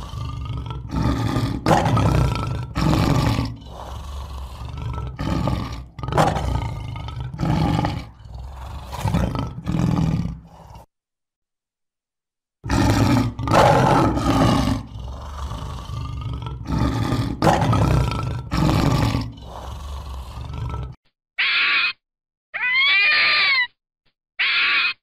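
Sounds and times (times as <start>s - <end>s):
lion roaring: 0.0s - 10.9s, 12.6s - 21.0s
short high animal calls: 21.4s - 22.0s, 24.4s - 25.0s.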